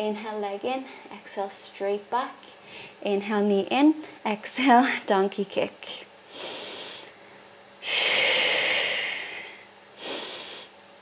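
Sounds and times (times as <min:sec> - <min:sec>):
woman breathing hard: 0:02.6 - 0:03.0, 0:06.3 - 0:10.8.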